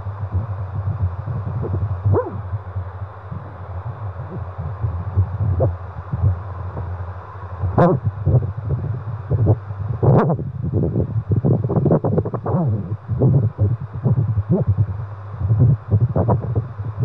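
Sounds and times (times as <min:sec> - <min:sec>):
fetal heartbeat on doppler speaker: 0:00.0 - 0:07.0, 0:07.6 - 0:17.0.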